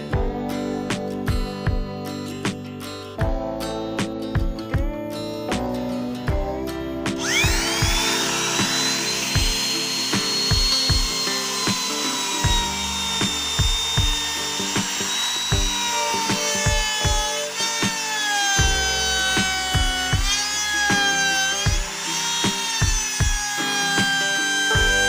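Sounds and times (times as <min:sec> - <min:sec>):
background music with steady beat: 0:00.0 - 0:25.0
trim router whining: 0:07.2 - 0:25.0.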